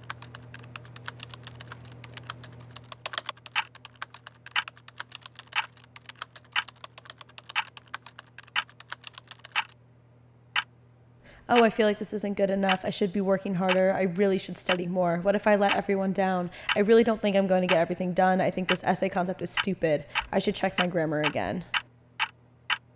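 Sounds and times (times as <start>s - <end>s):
rapid laptop keyboard typing: 0.0s - 9.8s, 19.6s - 22.9s
low steady hum: 0.0s - 22.9s
clock ticking: 17.7s - 17.9s, 19.6s - 22.9s.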